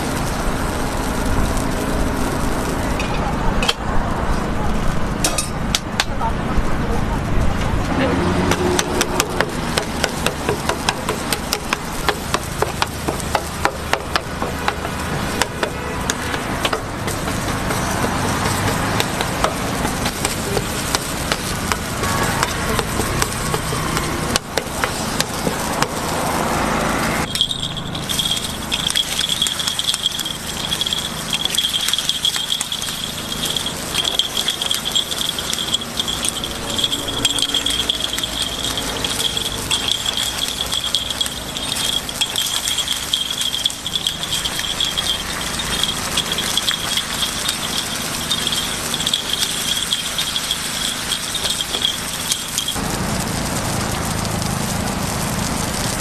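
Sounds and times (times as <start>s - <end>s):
metal picks clicking on iron pan: 8.5s - 26.2s, 27.3s - 52.8s
hiss: 9.4s - 56.0s
steady high-pitched tone: 27.2s - 52.8s.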